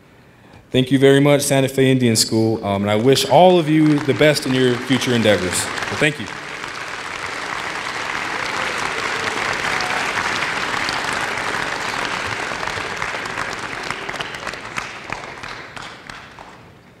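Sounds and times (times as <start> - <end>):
audience applauding: 3.0 - 16.9.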